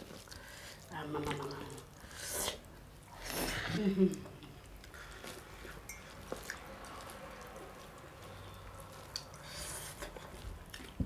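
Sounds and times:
chewing: 0.0s - 11.0s.

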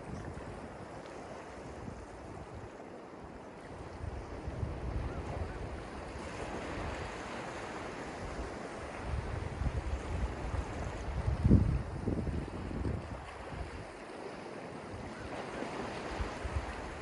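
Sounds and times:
wind buffeting microphone: 0.0s - 2.8s, 3.7s - 14.1s, 14.8s - 17.0s
small waves breaking on sand: 0.0s - 17.0s.

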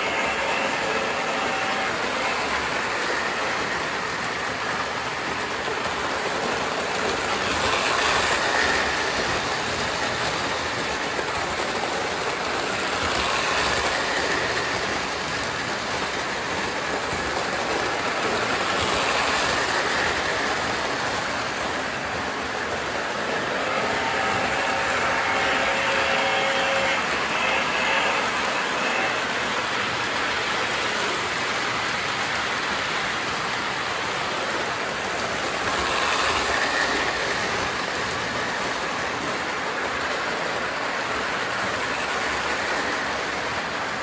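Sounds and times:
model train wheels rattling on rails: 0.0s - 44.0s.

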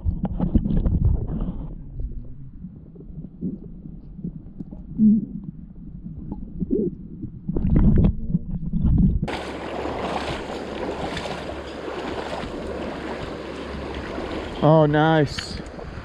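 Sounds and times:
muffled low knocks and rumbling: 0.0s - 9.3s
river water rushing: 9.3s - 16.0s.

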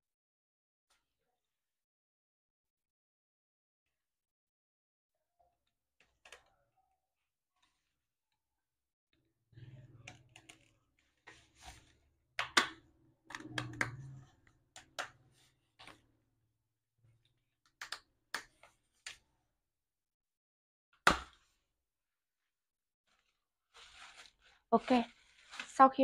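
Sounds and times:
craft knife cutting cardboard: 23.7s - 25.7s.

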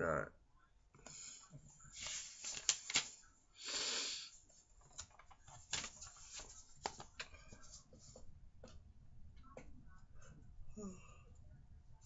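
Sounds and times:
book pages rustling and clicking: 2.0s - 3.2s, 4.8s - 8.8s.

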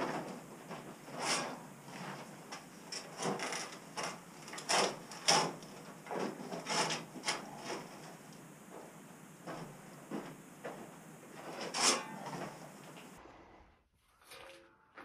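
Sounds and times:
shovel scraping floor: 0.0s - 2.3s, 3.0s - 7.9s, 11.4s - 12.6s.

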